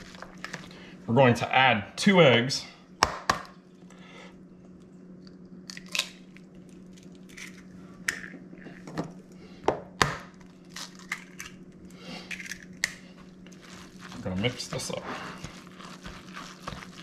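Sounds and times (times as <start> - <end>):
steady low hum: 0.0 - 17.0
eggshell cracking: 5.3 - 8.3.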